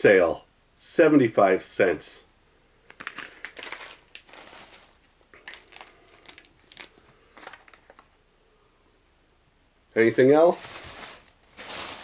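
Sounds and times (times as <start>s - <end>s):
plastic packaging crinkling: 2.9s - 8.2s, 10.5s - 12.0s.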